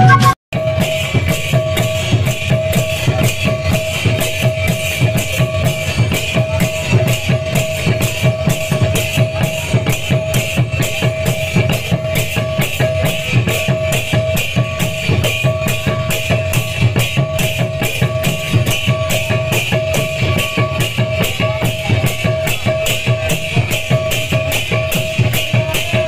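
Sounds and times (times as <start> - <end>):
sustained held note: 0.0 - 0.4
barrel drum beat: 0.0 - 26.0
hand cymbals clashing: 0.6 - 26.0.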